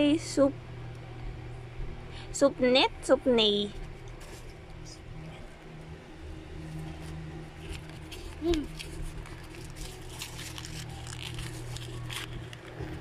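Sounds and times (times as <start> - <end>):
low hum: 0.0 - 13.0
paper crinkling and rustling: 3.8 - 4.7, 6.6 - 13.0.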